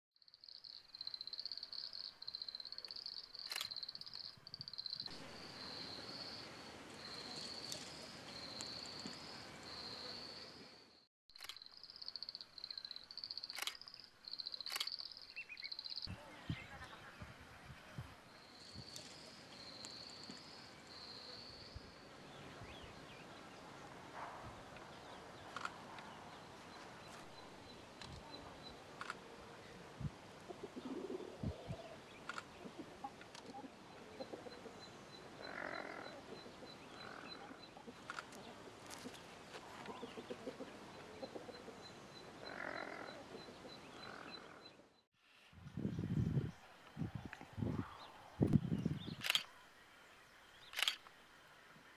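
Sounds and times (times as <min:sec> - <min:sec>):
rapid ticking bird trill: 0:00.2 - 0:05.2, 0:11.4 - 0:16.1
bird chirping: 0:00.2 - 0:10.5, 0:11.4 - 0:17.3
light clicks: 0:50.7 - 0:51.1.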